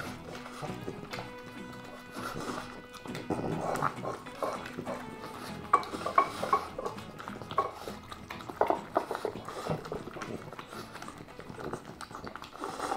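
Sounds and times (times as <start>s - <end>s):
dogs chewing and smacking: 0.0s - 12.9s
clicks against bowls: 3.2s - 10.4s.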